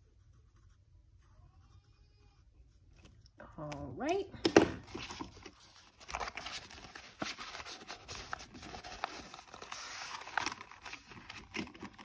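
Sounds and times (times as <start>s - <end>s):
paper rustling: 4.6s - 12.0s.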